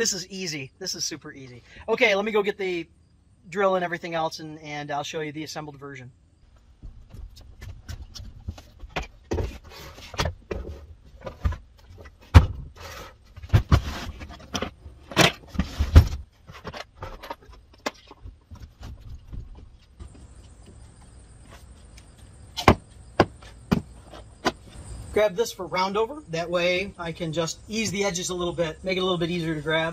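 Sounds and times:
footsteps: 6.4s - 12.3s, 15.5s - 24.9s.

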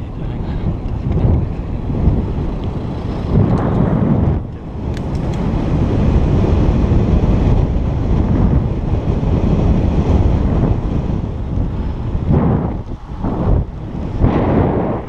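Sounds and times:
wind rumble on microphone: 0.0s - 15.0s.

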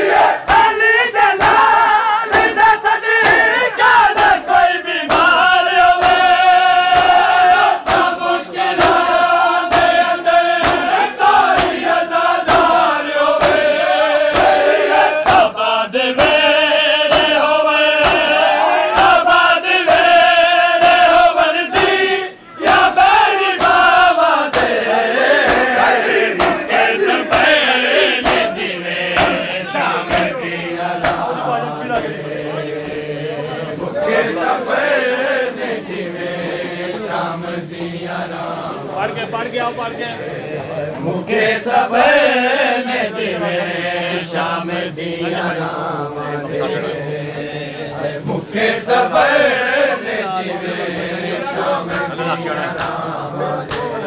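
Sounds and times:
crowd of men chanting: 0.0s - 54.0s
hands slapping chests: 5.1s - 5.4s, 6.0s - 8.2s, 8.8s - 9.1s, 9.7s - 10.0s, 10.6s - 10.9s, 11.5s - 13.7s, 17.1s - 17.4s, 18.0s - 19.2s, 21.7s - 22.0s, 24.5s - 24.8s, 25.4s - 25.8s, 26.4s - 26.7s, 28.2s - 29.5s, 30.1s - 31.3s, 51.9s - 53.1s, 53.7s - 54.0s.

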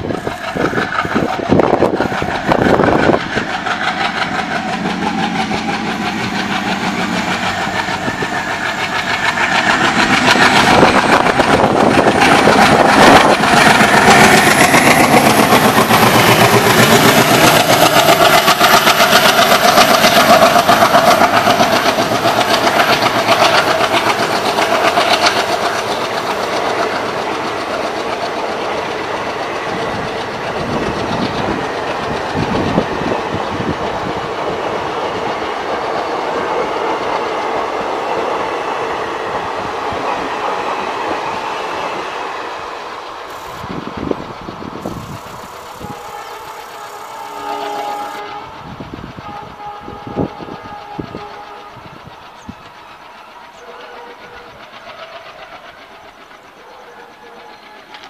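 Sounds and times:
diesel locomotive accelerating: 0.0s - 58.0s
wheels clacking on rails: 0.0s - 58.0s.

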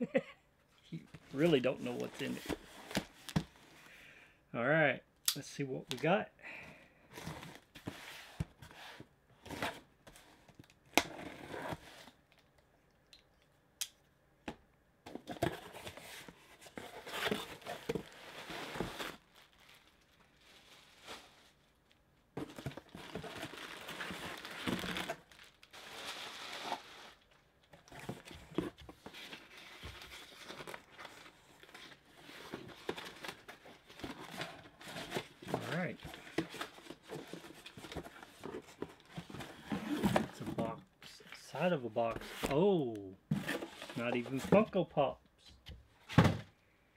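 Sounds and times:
rustling and crumpling: 15.2s - 40.8s.

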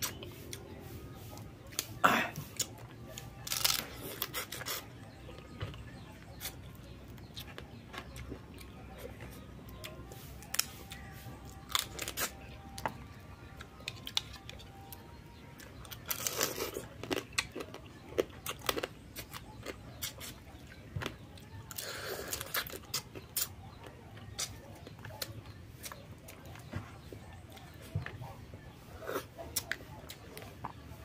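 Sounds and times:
sucking and chewing: 0.0s - 31.0s
crab shell cracking: 3.4s - 3.8s.

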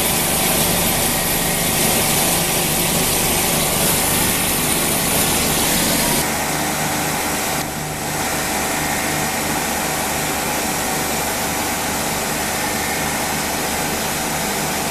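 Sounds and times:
coolant spray hiss: 0.0s - 6.2s
lathe machine hum: 0.0s - 14.9s.

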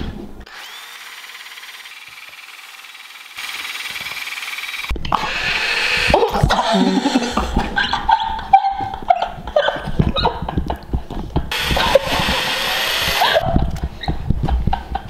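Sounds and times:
power drill whirring: 0.4s - 7.6s, 11.5s - 13.4s.

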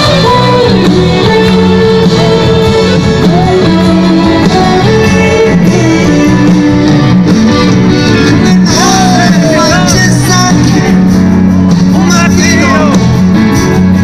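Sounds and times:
guitar: 0.0s - 14.0s
live rock band playing: 0.0s - 14.0s.

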